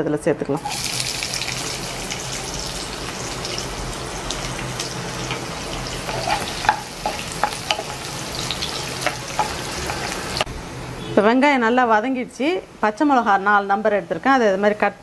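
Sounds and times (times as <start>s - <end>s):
onion sizzling in oil: 0.6s - 10.5s
wooden spatula scraping pan: 6.0s - 8.1s, 8.8s - 10.5s.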